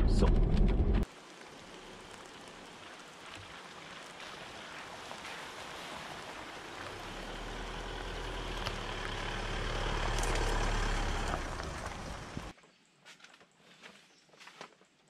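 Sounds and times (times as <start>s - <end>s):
tyres crunching on wet dirt: 1.0s - 15.0s
diesel engine idling: 6.2s - 12.5s.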